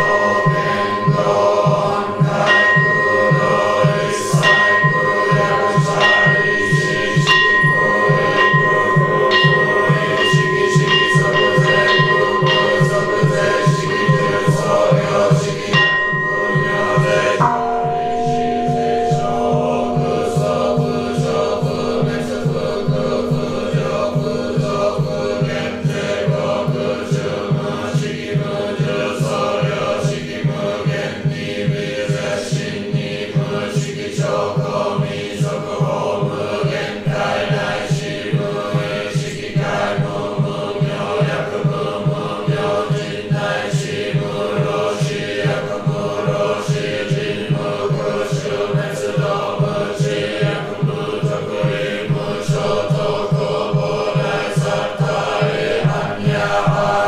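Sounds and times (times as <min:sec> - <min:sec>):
ringing tone: 0:00.0 - 0:27.3
group chanting: 0:00.0 - 0:57.0.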